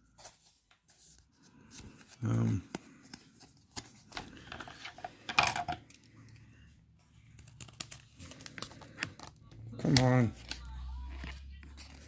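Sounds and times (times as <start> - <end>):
paper rustling and crinkling: 7.1 - 12.0.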